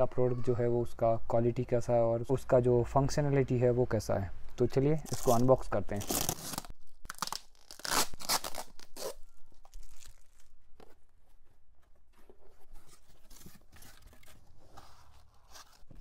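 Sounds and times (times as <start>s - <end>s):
packing tape tearing off cardboard: 5.0s - 10.6s, 12.5s - 16.0s
cardboard and foam rustling: 7.7s - 16.0s.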